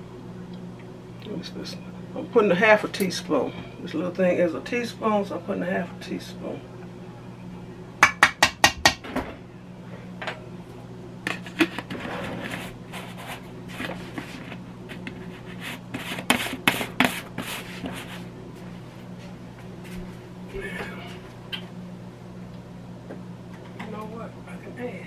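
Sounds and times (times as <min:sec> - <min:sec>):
rubbing and scraping: 0:11.3 - 0:18.3.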